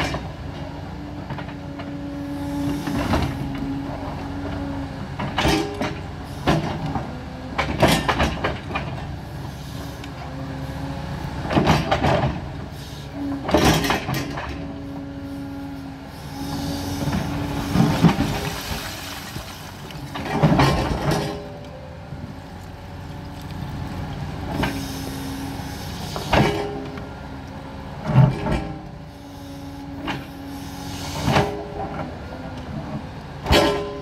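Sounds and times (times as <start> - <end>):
excavator engine humming: 0.0 - 34.0
bucket scraping through rubble: 16.7 - 21.4.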